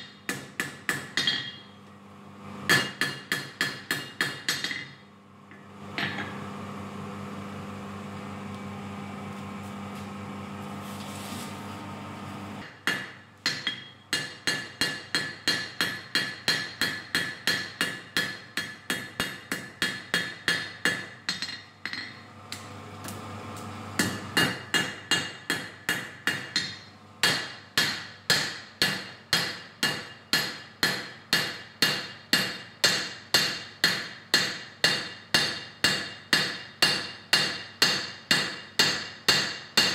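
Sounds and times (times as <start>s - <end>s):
hammer striking steel on anvil: 0.0s - 1.8s, 2.7s - 5.0s, 12.6s - 22.2s, 24.0s - 39.9s
steady hum: 0.9s - 34.6s.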